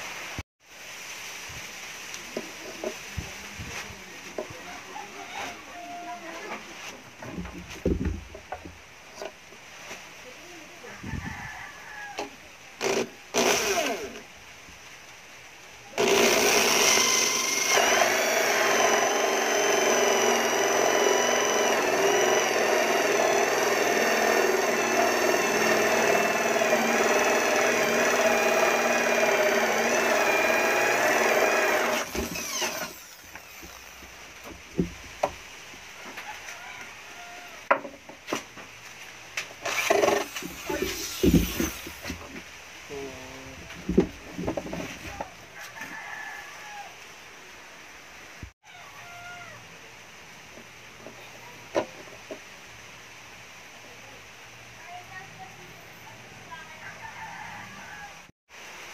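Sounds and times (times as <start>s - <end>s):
electric drill cutting through wood: 12.8s - 14.2s, 16.0s - 34.1s, 39.6s - 42.1s
whining drill motor: 12.8s - 14.2s, 16.0s - 34.0s, 39.6s - 42.0s.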